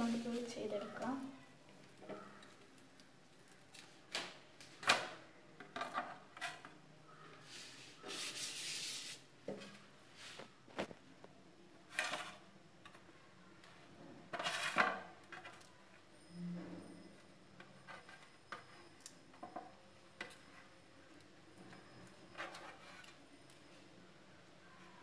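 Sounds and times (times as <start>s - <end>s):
rubbing on a pan: 7.4s - 9.2s.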